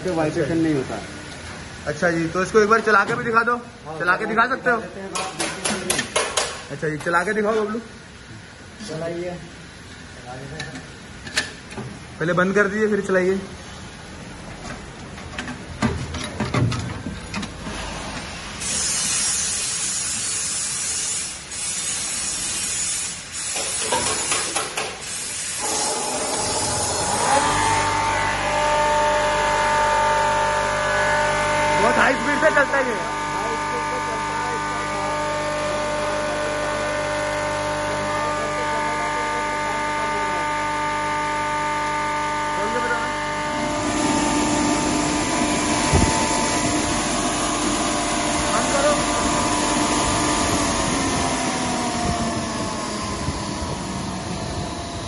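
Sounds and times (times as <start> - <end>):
machine rushing hiss: 17.6 - 35.0
pulverizer machine whine: 25.6 - 55.0.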